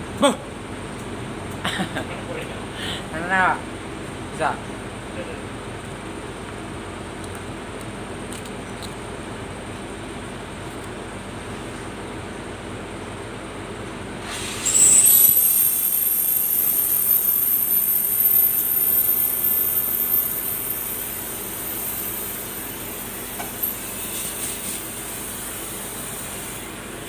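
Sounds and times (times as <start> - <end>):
cutting torch hissing jet: 14.2 - 27.0
high whistle rising in pitch: 14.6 - 21.9.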